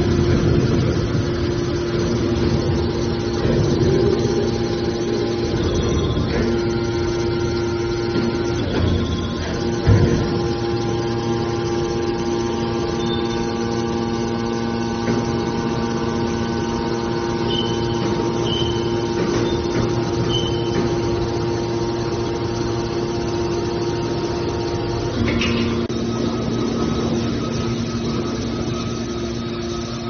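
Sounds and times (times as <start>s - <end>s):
hydraulic power unit humming: 0.0s - 30.0s
brief high squeaks: 20.3s - 20.8s.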